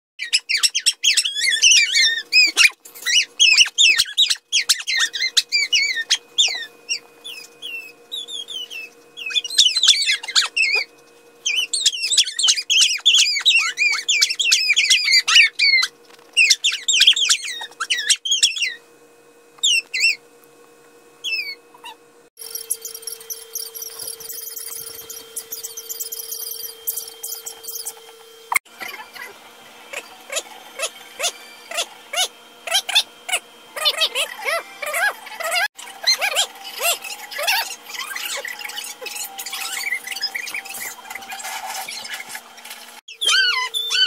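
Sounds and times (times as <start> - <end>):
dog squeaking and chirping: 0.2 - 18.8, 19.6 - 20.2, 21.2 - 22.0, 22.6 - 28.0, 29.9 - 42.4, 43.1 - 44.0.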